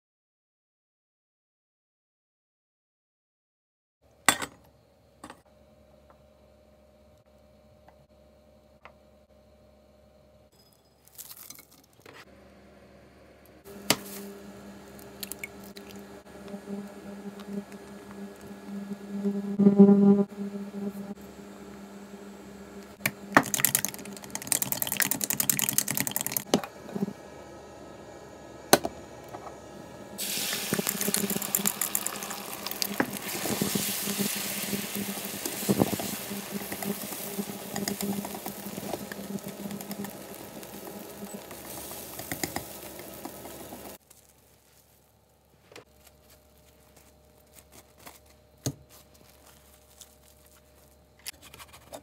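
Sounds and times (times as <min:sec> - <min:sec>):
eggs sizzling in frying pan: 0:13.7 - 0:19.6, 0:22.2 - 0:26.5, 0:30.2 - 0:45.0
chopsticks beating eggs in glass: 0:23.4 - 0:26.4.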